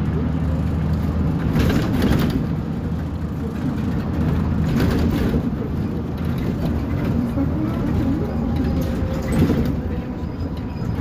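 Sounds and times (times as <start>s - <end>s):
bus diesel engine droning: 0.0s - 11.0s.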